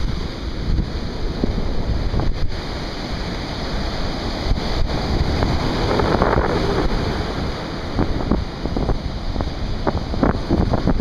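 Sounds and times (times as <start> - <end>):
surf breaking on beach: 0.0 - 11.0
wind buffeting microphone: 0.0 - 11.0.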